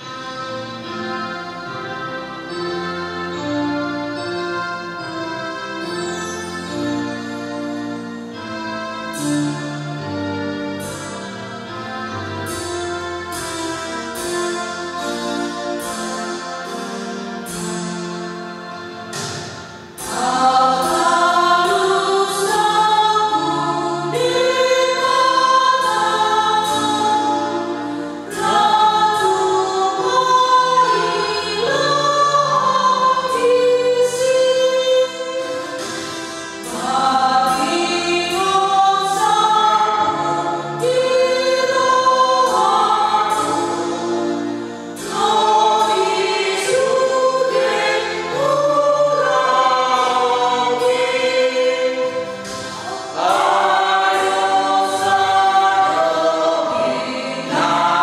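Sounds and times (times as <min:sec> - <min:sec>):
women singing a hymn in harmony: 0:20.0 - 0:58.0.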